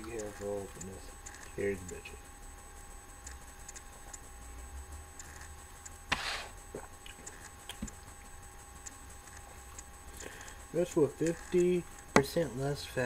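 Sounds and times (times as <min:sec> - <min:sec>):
faint clicks: 0:03.2 - 0:04.3, 0:06.8 - 0:10.6.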